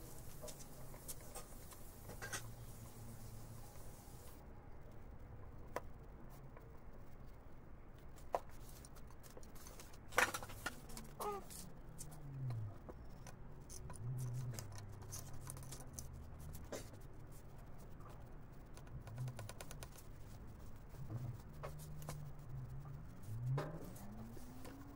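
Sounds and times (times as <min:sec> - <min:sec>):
low hum: 0:10.9 - 0:19.4, 0:20.0 - 0:24.9.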